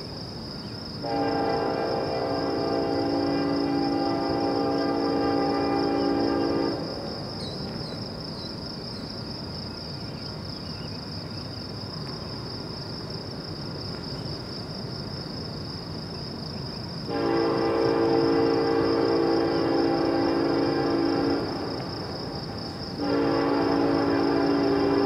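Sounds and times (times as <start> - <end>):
crickets chirping: 0.0 - 25.0
train air horn chord: 1.0 - 6.9, 17.1 - 22.0, 23.0 - 25.0
train rumbling: 1.0 - 9.5, 11.7 - 25.0.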